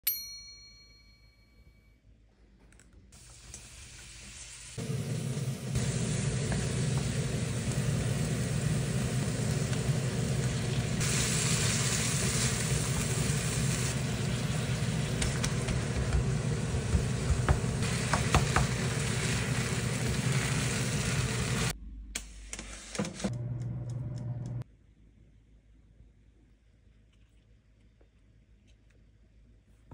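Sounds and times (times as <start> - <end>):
vegetables sizzling in hot oil: 3.2 - 21.7.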